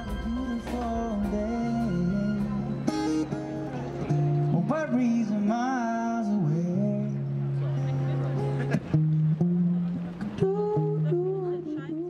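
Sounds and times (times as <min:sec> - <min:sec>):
man singing: 0:00.0 - 0:07.7, 0:10.2 - 0:12.0
acoustic guitar: 0:00.0 - 0:12.0.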